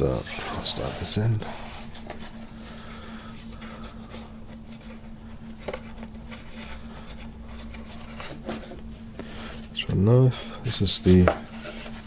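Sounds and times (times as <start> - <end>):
fabric rustling and scraping: 0.0 - 2.6
electrical hum: 0.0 - 12.0.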